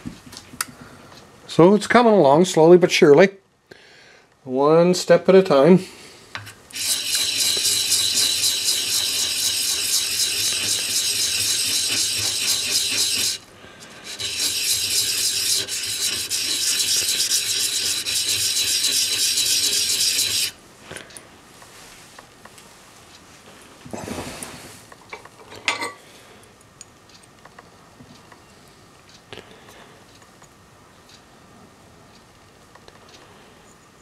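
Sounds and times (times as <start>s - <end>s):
metal part scratching on sandpaper: 6.7s - 20.6s.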